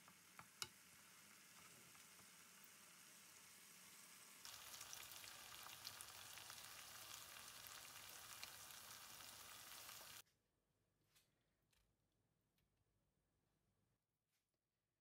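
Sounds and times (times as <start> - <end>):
food sizzling in oil: 0.0 - 10.2.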